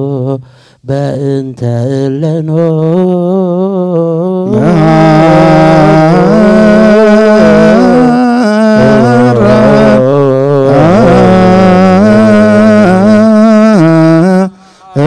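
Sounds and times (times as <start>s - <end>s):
men chanting: 4.4s - 15.0s.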